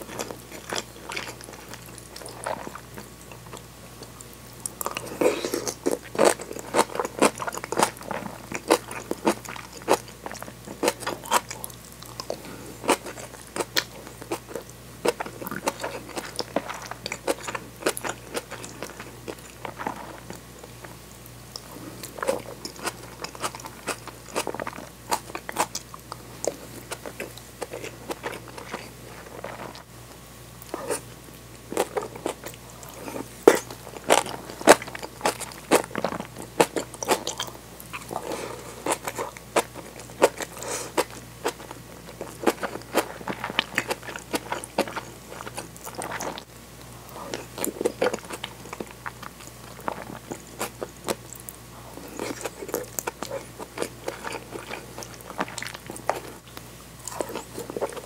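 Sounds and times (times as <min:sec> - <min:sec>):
crisp chewing crunches: 0:00.0 - 0:29.9, 0:30.6 - 0:58.0.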